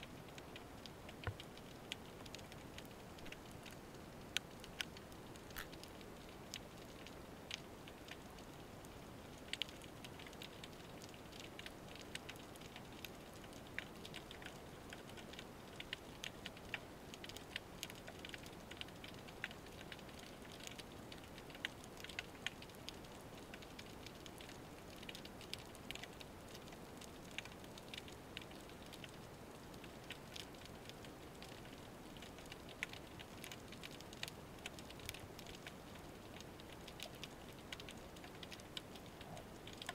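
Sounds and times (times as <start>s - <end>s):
steady low hiss: 0.0s - 39.9s
snapping shrimp clicks underwater: 0.3s - 8.2s, 29.8s - 39.9s.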